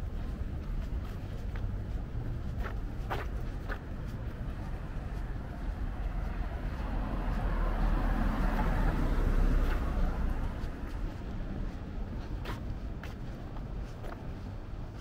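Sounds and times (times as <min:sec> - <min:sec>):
low traffic rumble: 0:00.0 - 0:15.0
vehicle passing by: 0:04.6 - 0:11.2.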